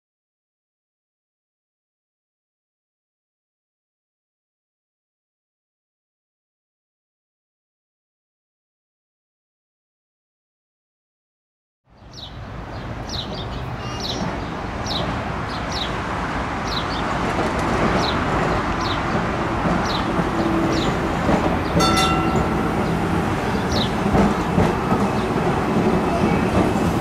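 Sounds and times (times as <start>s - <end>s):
tram rumbling on track: 12.0s - 27.0s
bird chirping: 19.8s - 25.6s
brief metallic ring: 21.8s - 22.5s.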